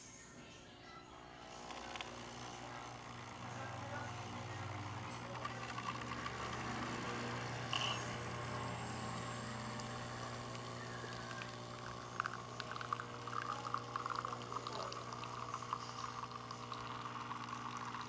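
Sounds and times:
coffee machine pump humming: 1.1s - 18.0s
coffee streaming into glass: 1.3s - 18.0s.

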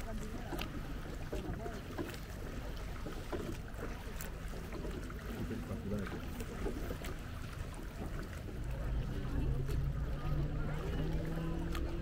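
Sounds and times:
oars dipping in water: 0.0s - 12.0s
water splashing and lapping: 0.0s - 12.0s.

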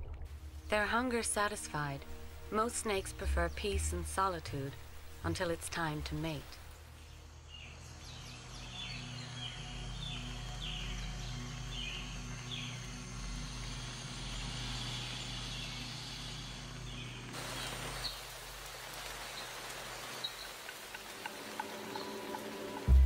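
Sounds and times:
rain-like hiss: 0.3s - 23.0s
small birds chirping: 5.8s - 22.9s.

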